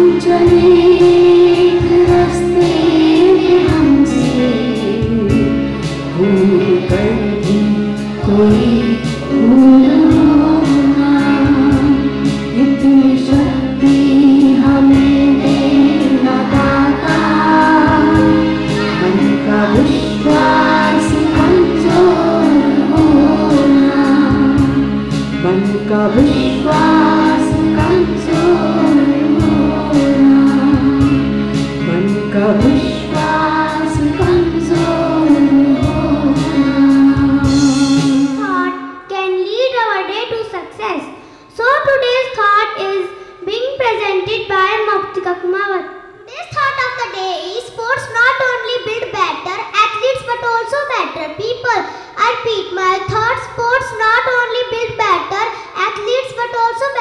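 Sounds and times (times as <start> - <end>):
woman singing into a microphone: 0.0 - 38.4
accompaniment with steady beat: 0.0 - 39.0
children singing along: 0.0 - 39.1.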